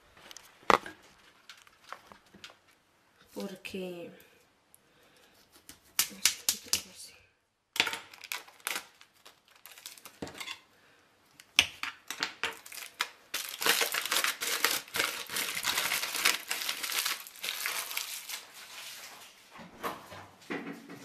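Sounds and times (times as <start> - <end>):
aluminium foil crinkling: 0.8 - 2.8, 8.0 - 10.6, 12.4 - 19.3.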